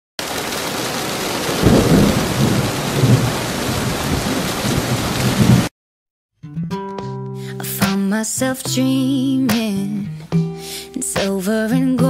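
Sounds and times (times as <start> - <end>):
heavy rain pouring: 0.2 - 5.7
low thunder rumbles: 1.0 - 5.7.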